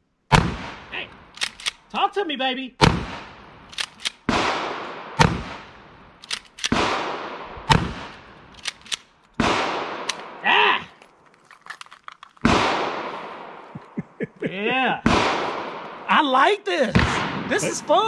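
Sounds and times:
sharp thin gunshots: 2.8s - 3.6s, 4.2s - 6.0s, 6.7s - 8.3s, 9.4s - 10.4s, 12.4s - 13.6s, 15.0s - 16.0s
shotgun blasts ringing: 2.8s - 8.5s, 9.4s - 10.4s, 12.4s - 13.6s, 15.0s - 16.0s, 17.0s - 17.8s.

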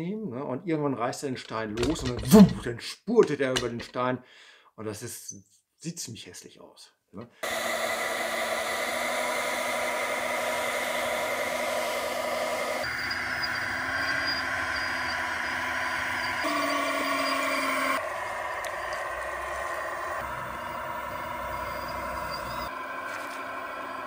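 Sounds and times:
model loader motor whine: 7.4s - 24.0s.

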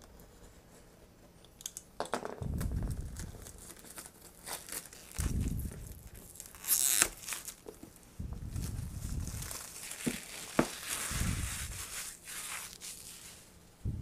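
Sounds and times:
shrink wrap crinkling: 2.6s - 13.6s.

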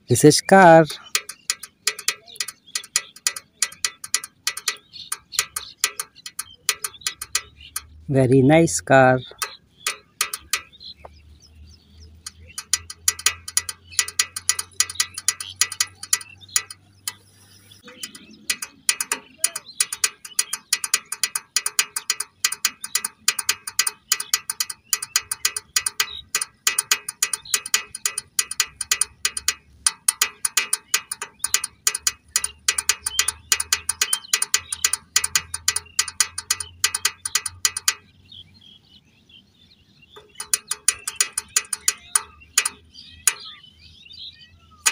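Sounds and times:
toy car pull-back motor clicking: 12.2s - 17.2s, 17.9s - 37.9s, 40.2s - 43.5s.

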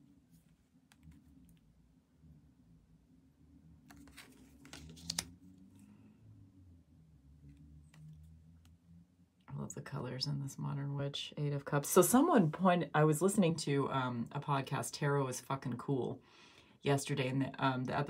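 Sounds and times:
faint low hum: 0.0s - 18.0s
cards tapping and sliding on table: 3.9s - 5.3s.

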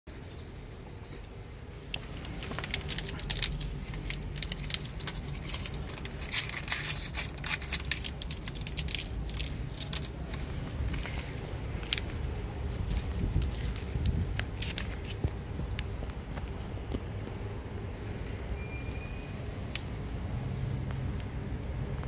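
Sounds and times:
steady low rumble: 0.1s - 22.0s
crinkling and rustling packaging: 1.7s - 17.6s.

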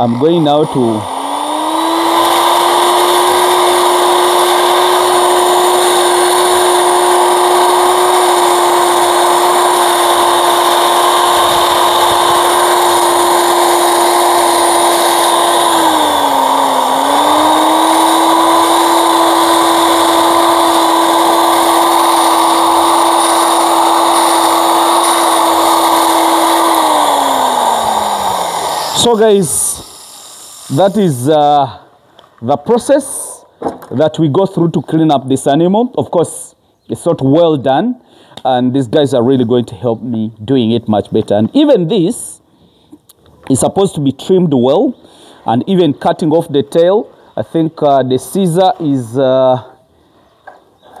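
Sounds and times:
angle grinder whining: 0.0s - 31.8s, 48.2s - 49.7s.

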